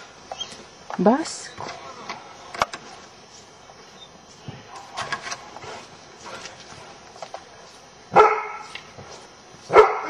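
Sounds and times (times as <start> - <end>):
soft scuffling: 2.8 - 9.9
dog barking: 4.6 - 5.1, 8.1 - 8.7, 9.7 - 10.0.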